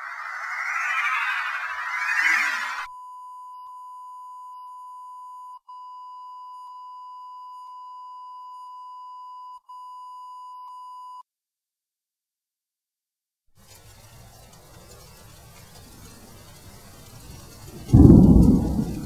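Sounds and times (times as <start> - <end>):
electronic reference tone: 0.0 - 2.9.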